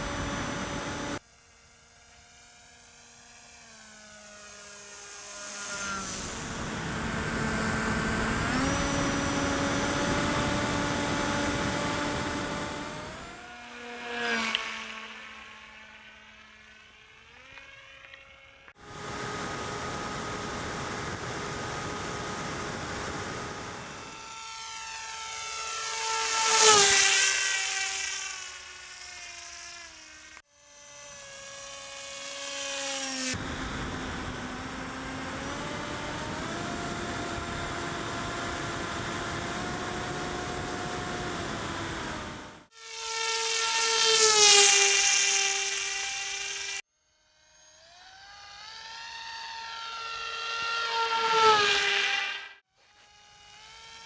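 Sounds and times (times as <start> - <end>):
model plane motor whining: 0.0 - 54.0.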